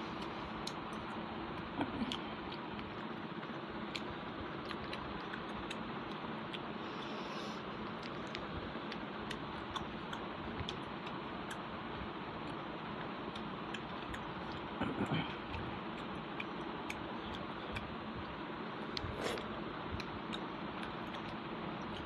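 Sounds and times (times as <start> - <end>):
chewing and lip smacks: 0.1 - 22.0.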